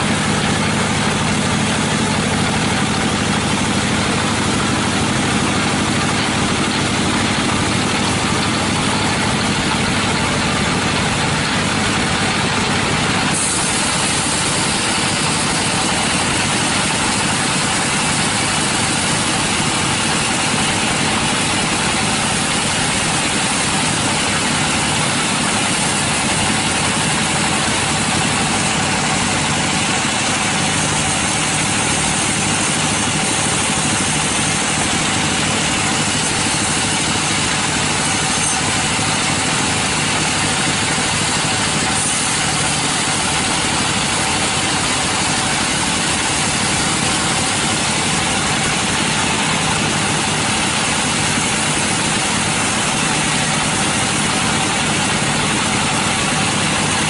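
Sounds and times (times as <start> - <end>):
band saw cutting a log: 0.0 - 57.0.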